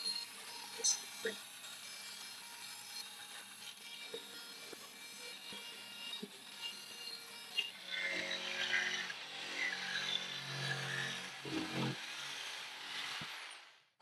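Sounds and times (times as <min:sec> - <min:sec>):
band saw cutting plywood: 0:00.0 - 0:13.5
jigsaw cutting plywood: 0:00.0 - 0:13.7.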